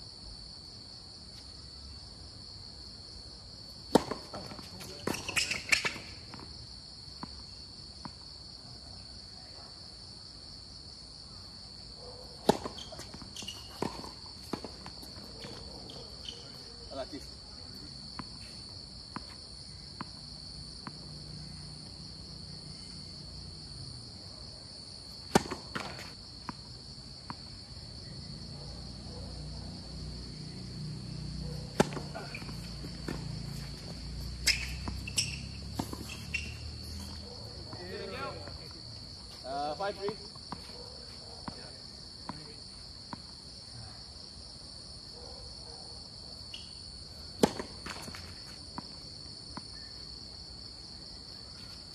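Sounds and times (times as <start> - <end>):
night insects chirring: 0.0 - 51.9
tennis balls hit and bouncing: 3.8 - 6.6, 12.3 - 16.6, 25.0 - 27.5, 31.0 - 38.6, 46.6 - 49.9.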